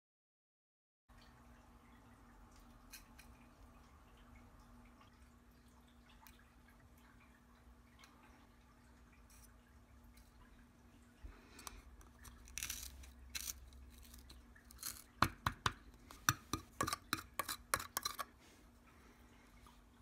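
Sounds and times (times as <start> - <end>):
pen scraping in a cup: 12.1 - 15.1, 16.1 - 18.4
pen tapping in a cup: 14.8 - 18.3.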